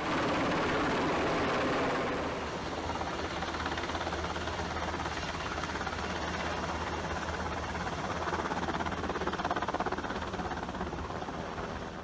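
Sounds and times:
helicopter engine hum: 0.0s - 12.0s
helicopter rotor chopping: 0.0s - 12.0s.

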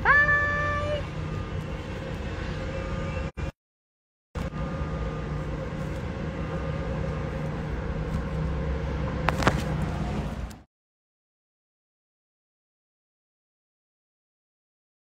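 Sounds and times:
low mechanical hum: 4.4s - 10.6s.

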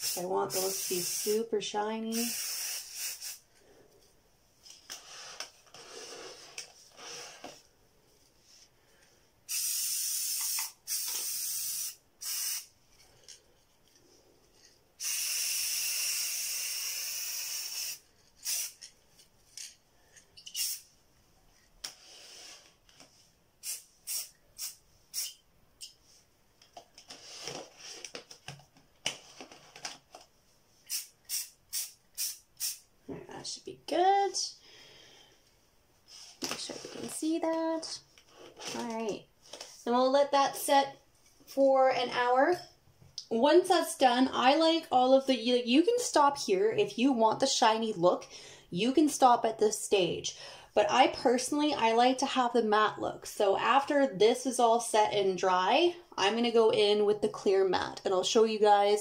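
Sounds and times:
aerosol can spraying: 0.0s - 1.4s, 2.1s - 3.4s, 9.5s - 12.7s, 15.0s - 18.9s, 20.4s - 20.9s, 23.6s - 25.4s, 30.8s - 32.8s.

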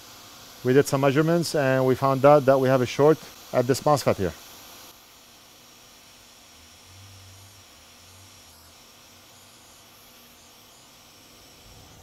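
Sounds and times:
hiss of hot airflow: 0.0s - 12.0s.

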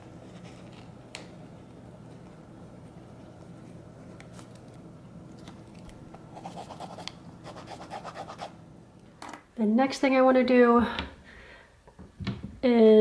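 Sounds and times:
pen scratching on paper: 6.4s - 8.5s.

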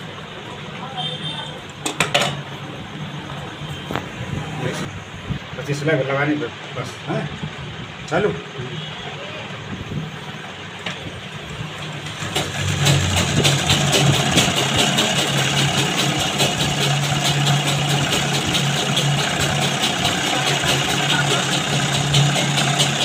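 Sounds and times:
sewing machine stitching: 12.0s - 23.0s.

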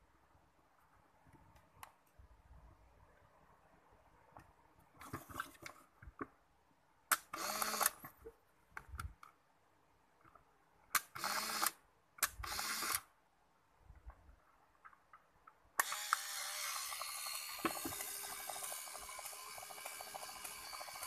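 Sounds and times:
camera motor whirring: 7.4s - 8.0s, 12.4s - 13.0s, 15.8s - 21.0s.

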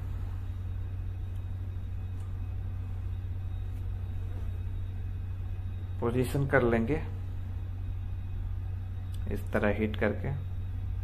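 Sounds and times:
machinery hum: 0.0s - 11.0s.

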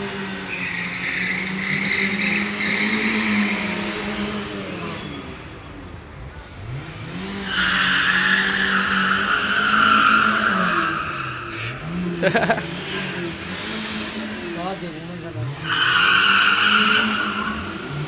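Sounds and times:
car engine revving: 0.0s - 18.0s
tyres squealing: 15.4s - 18.0s.

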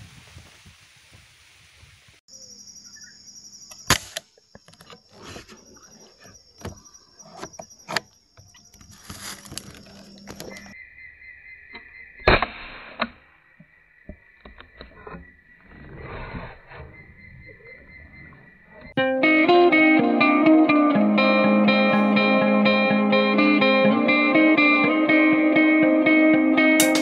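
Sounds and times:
high-pitched background drone: 20.9s - 24.1s
air rifle shots: 26.8s - 27.0s.

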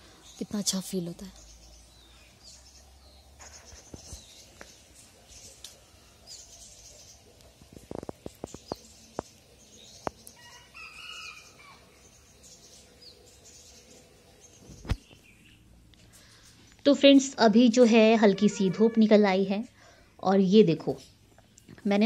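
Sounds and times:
small birds chirping: 0.0s - 22.0s
faint rooster crowing: 10.4s - 12.0s.

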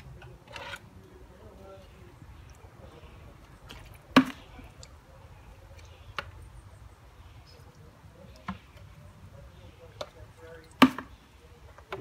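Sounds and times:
net knocking and splashing in pond: 3.6s - 4.7s.

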